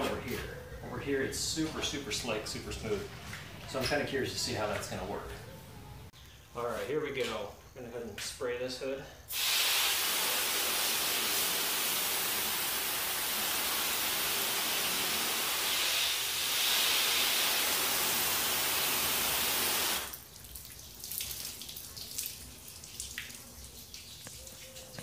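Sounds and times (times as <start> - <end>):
water spray hissing on car hood: 9.3 - 20.2
faint dripping: 20.1 - 25.0.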